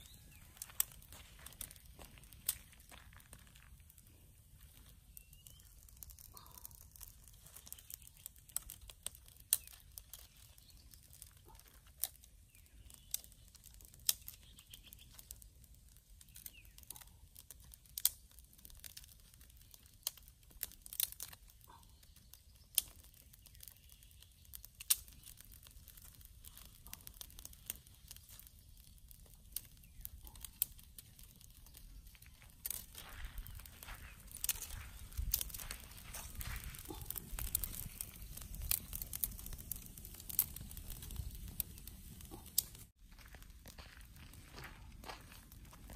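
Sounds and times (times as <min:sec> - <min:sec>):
twigs snapping and crackling: 0:00.0 - 0:45.9
dry branches rustling: 0:31.1 - 0:45.9.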